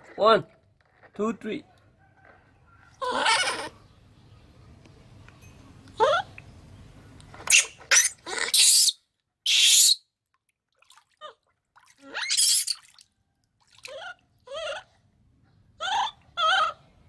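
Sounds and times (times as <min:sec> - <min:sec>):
baby monkey crying: 0:03.0 - 0:03.8, 0:07.5 - 0:10.0, 0:12.0 - 0:12.8, 0:13.9 - 0:15.0, 0:15.8 - 0:16.8
water splashing in plastic basin: 0:10.3 - 0:14.0.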